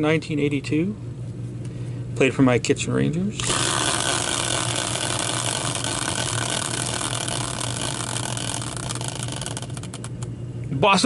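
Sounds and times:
caster wheel whirring: 3.4 - 10.3.

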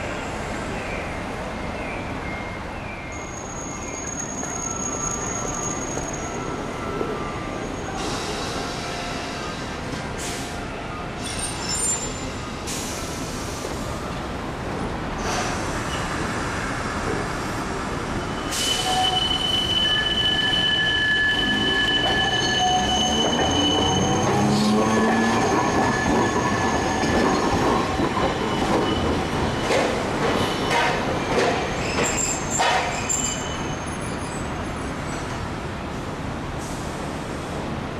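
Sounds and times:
streetcar rumbling past: 0.0 - 37.9
streetcar wheels squealing: 2.4 - 14.0, 15.2 - 35.5.

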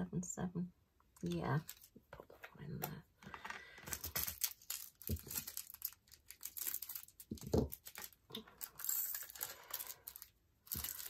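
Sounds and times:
plastic bags crinkling: 1.6 - 2.0, 3.3 - 11.0.

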